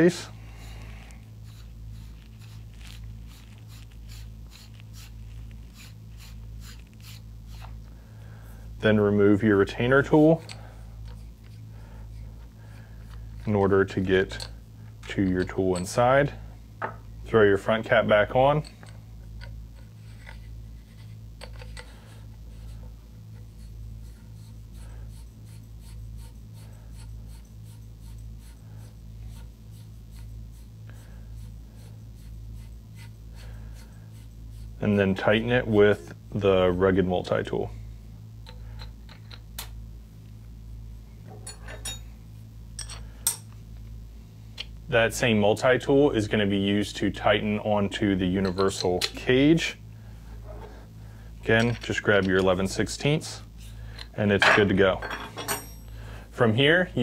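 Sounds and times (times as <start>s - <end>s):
metal threads scraping: 0.0s - 7.9s
steady low hum: 0.0s - 57.0s.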